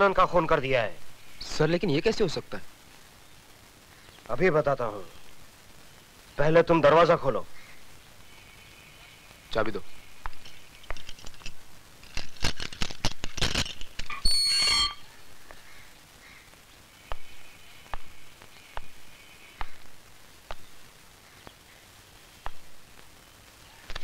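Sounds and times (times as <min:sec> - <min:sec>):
steel door squealing: 0:14.1 - 0:15.0.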